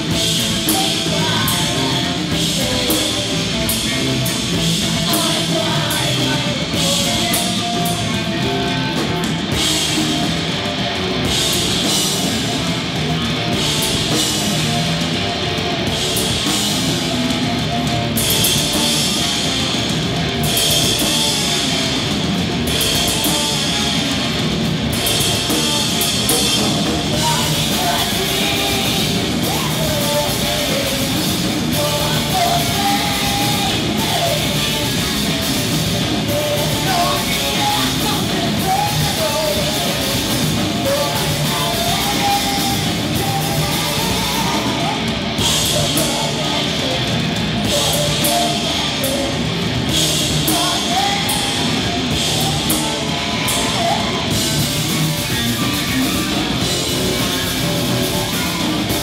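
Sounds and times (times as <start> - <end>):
rock band playing: 0.0 - 59.0
woman singing: 0.2 - 4.0, 4.7 - 9.3, 27.0 - 49.1, 50.4 - 54.5.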